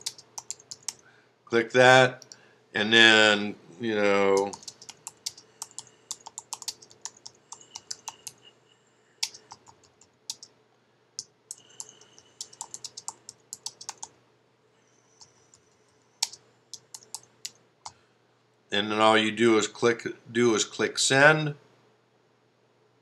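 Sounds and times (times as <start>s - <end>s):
typing on keyboard: 0.0s - 1.0s, 4.3s - 8.4s, 9.2s - 10.5s, 11.5s - 14.1s, 16.2s - 17.6s.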